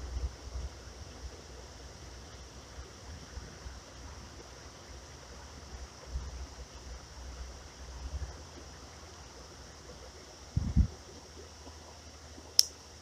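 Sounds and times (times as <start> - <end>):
steady outdoor hiss: 0.0 - 13.0
wind buffeting microphone: 10.5 - 11.1.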